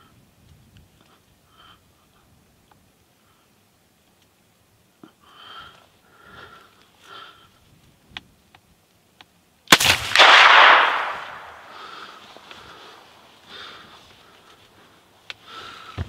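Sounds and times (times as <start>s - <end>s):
faint clicks: 4.0s - 4.4s
rifle shot: 9.7s - 11.8s
breathing close to microphone: 11.6s - 16.0s.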